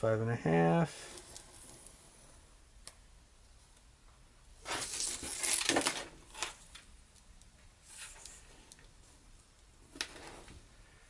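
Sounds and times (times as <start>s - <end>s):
paper and tape measure rustling: 4.6s - 6.6s, 7.9s - 8.4s.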